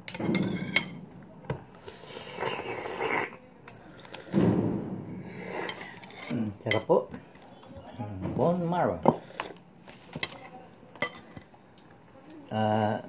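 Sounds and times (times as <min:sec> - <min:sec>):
slurping: 0:01.8 - 0:04.4, 0:05.2 - 0:06.5.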